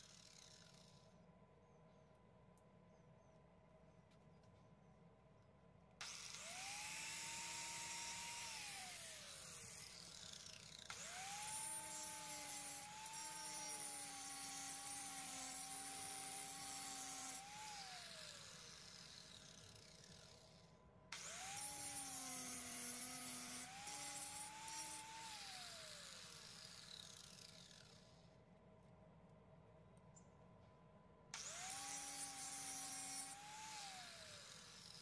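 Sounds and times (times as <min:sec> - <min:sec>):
angle grinder cutting metal: 0:06.0 - 0:20.5, 0:21.2 - 0:28.2, 0:31.4 - 0:35.0.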